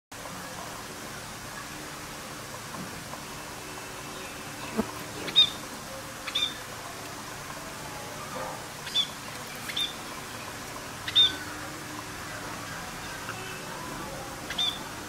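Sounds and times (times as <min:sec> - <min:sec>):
background hiss: 0:00.2 - 0:15.0
budgerigars chirping: 0:04.7 - 0:05.6, 0:06.2 - 0:06.6, 0:08.8 - 0:10.0, 0:11.0 - 0:11.5, 0:14.5 - 0:14.9.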